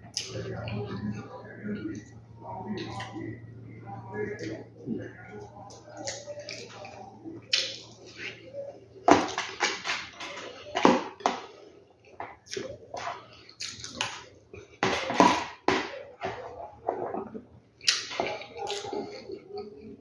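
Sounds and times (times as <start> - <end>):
wet chewing and lip-smacking: 12.1 - 14.8, 17.8 - 19.4.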